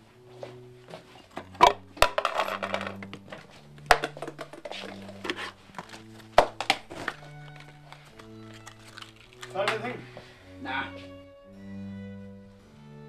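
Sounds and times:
rustling and shuffling: 0:00.0 - 0:08.9
soft background music: 0:00.0 - 0:13.0
objects knocking and clattering: 0:00.9 - 0:09.9.

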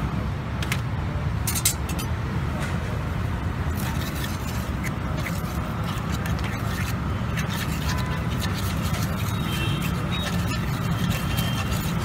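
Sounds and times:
metal spatula scraping on griddle: 0:03.7 - 0:12.0.

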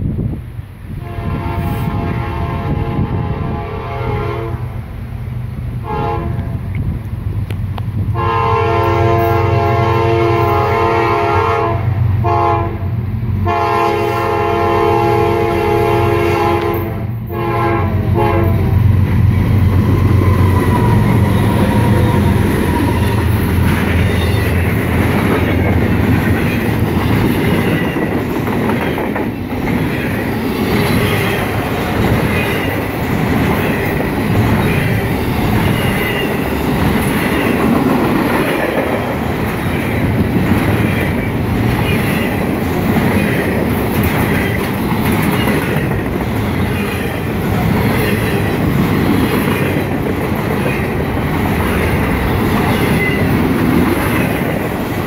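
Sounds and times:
train wheels rumbling and clacking: 0:00.0 - 0:55.0
locomotive air horn blasts: 0:01.0 - 0:04.7, 0:05.8 - 0:06.6, 0:08.1 - 0:18.9.

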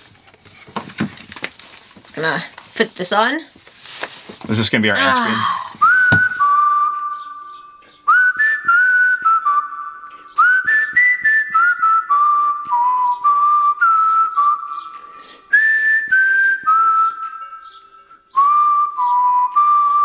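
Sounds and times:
person whistling a tune: 0:05.0 - 0:20.0.

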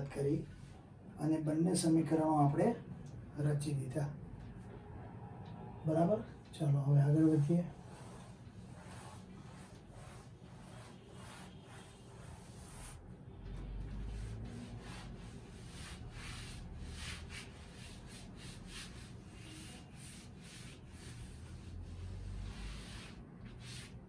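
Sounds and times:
duster rubbing on chalkboard: 0:07.2 - 0:24.0.

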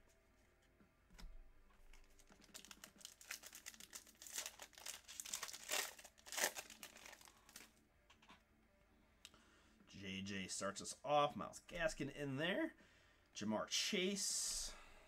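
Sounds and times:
foil wrapper crinkling: 0:01.9 - 0:07.7.

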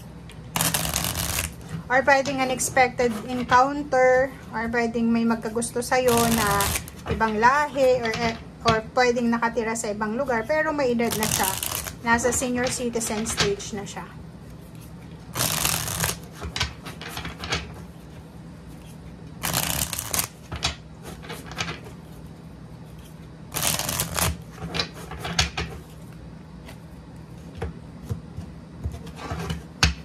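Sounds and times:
cards riffling: 0:00.5 - 0:01.7, 0:06.1 - 0:07.0, 0:11.1 - 0:12.0, 0:15.3 - 0:16.3, 0:19.4 - 0:20.4, 0:23.5 - 0:24.5.

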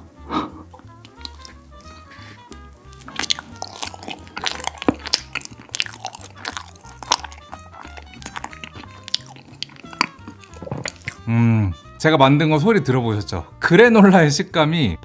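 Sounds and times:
background music with beat: 0:00.0 - 0:12.1
chewing with crunches: 0:00.3 - 0:11.4.

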